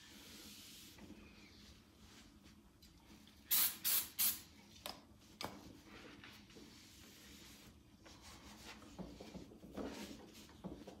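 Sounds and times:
aerosol can spraying: 3.5 - 4.4.

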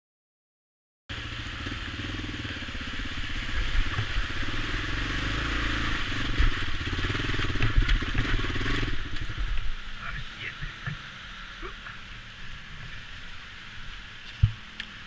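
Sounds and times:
motorcycle engine thumping exhaust: 1.1 - 9.7, 14.2 - 14.9
bike hitting bumps: 6.2 - 9.7, 14.2 - 14.7.

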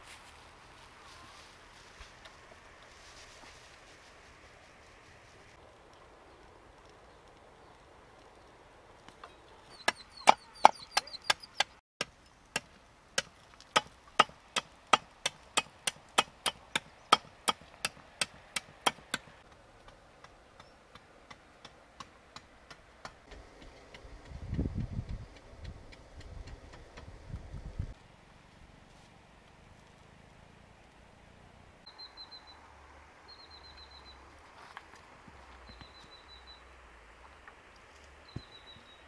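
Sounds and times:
blade chopping bamboo: 12.0 - 19.6.

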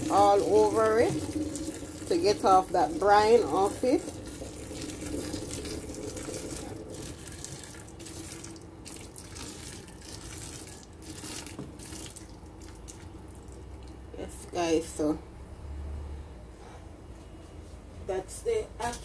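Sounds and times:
water pouring through colander: 0.0 - 14.0
water splashing into metal sink: 0.0 - 14.0.

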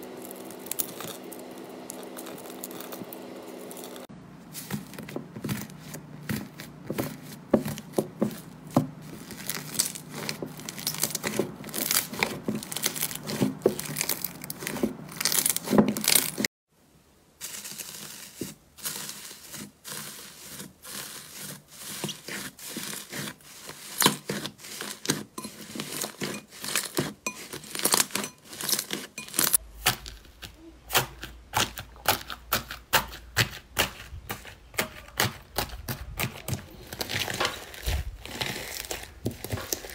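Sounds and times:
slime crackling when squeezed: 9.2 - 16.4.

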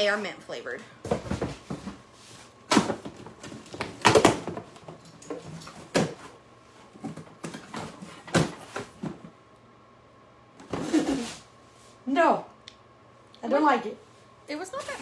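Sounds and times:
cardboard boxes rustling: 1.0 - 9.4
sharp knocks on boxes: 2.7 - 5.0.

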